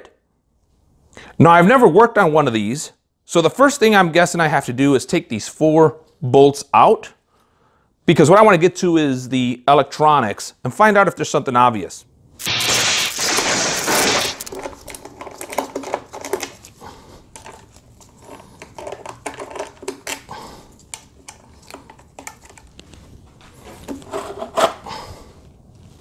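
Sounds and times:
hissing noise: 0:12.4 - 0:14.6.

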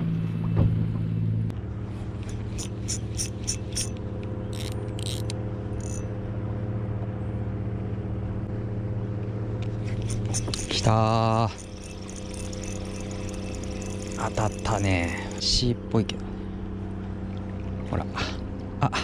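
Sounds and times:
boat engine humming: 0:00.0 - 0:18.9
sharp high ticks: 0:02.2 - 0:06.0, 0:09.6 - 0:15.5.

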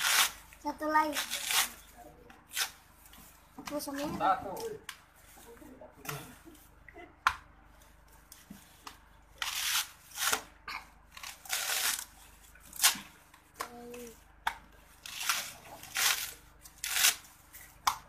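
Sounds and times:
coconut husk crunching and ripping: 0:09.4 - 0:13.2, 0:15.0 - 0:18.0.

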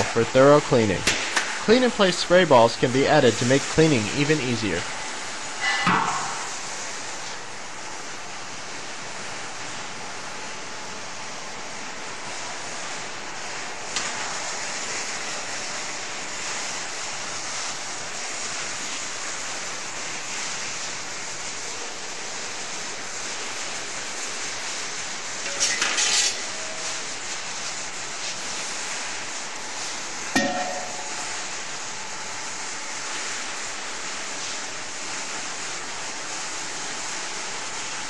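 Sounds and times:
steady hiss: 0:00.0 - 0:38.0
metal sifter parts knocking: 0:30.4 - 0:31.2.

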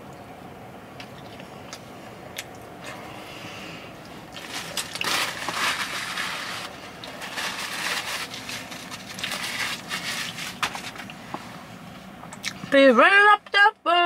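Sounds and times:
food packaging crackling: 0:04.0 - 0:11.2.

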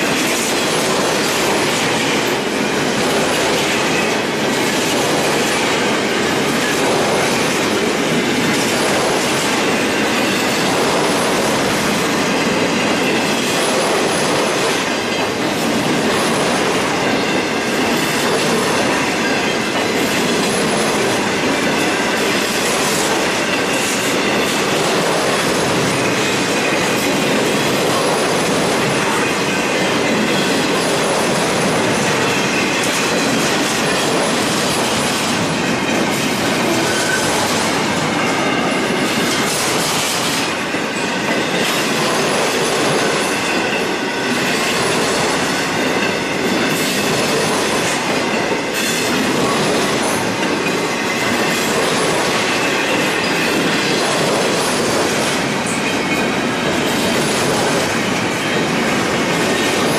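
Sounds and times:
train wheels rumbling and rattling: 0:00.0 - 0:59.9
high wheel squeal: 0:36.5 - 0:38.9.

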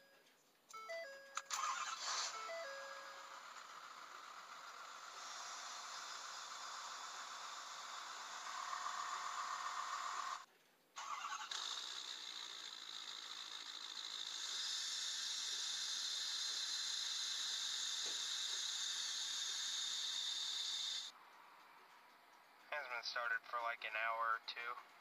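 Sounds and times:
diesel engine running: 0:01.4 - 0:21.1.

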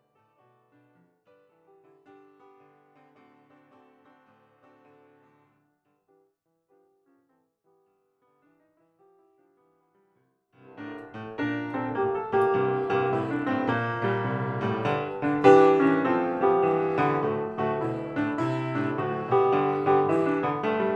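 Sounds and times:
piano music: 0:10.6 - 0:20.9.

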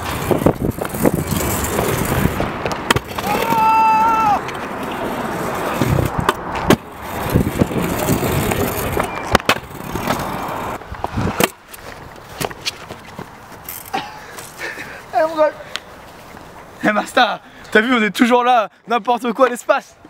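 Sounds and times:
scooter clacking on ground: 0:00.0 - 0:14.6
scooter wheels rolling over paving: 0:00.0 - 0:15.4.

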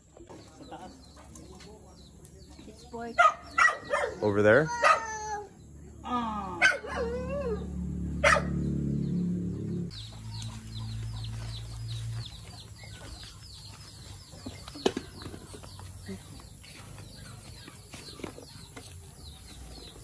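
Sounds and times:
low hum: 0:05.5 - 0:14.1.

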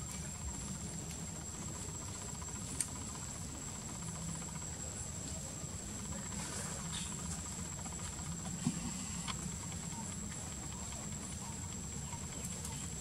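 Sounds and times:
faint ticks: 0:02.6 - 0:03.1.

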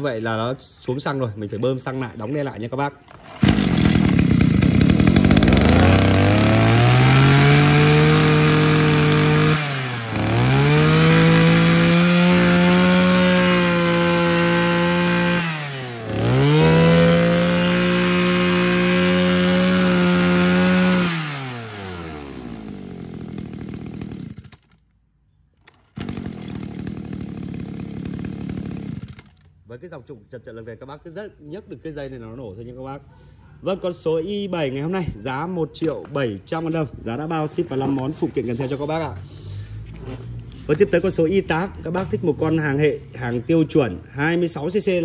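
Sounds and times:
brush cutter engine revving: 0:03.0 - 0:24.8, 0:25.7 - 0:29.6.

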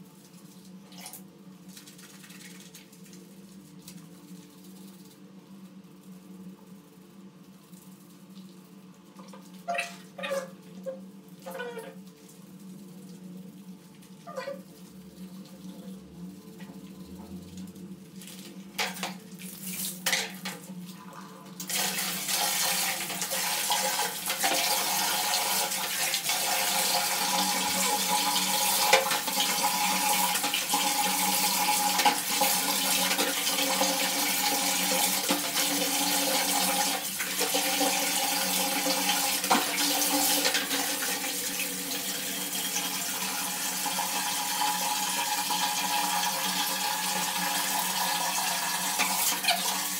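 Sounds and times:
tap water running into plastic bucket: 0:21.6 - 0:49.9.

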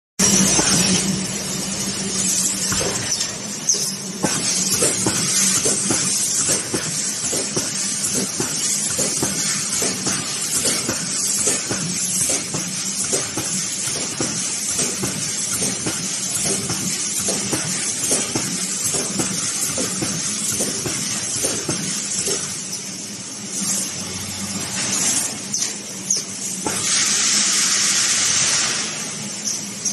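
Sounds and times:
machine hum: 0:00.2 - 0:28.6
welding machine hiss: 0:00.2 - 0:29.9
loud sustained hiss: 0:26.7 - 0:29.4.

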